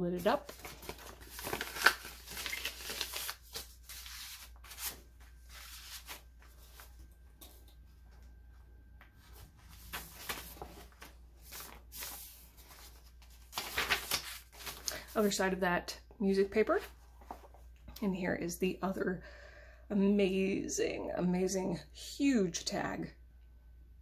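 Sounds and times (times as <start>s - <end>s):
paper pages rustling: 0.2s - 8.3s, 9.0s - 15.4s, 16.8s - 17.8s.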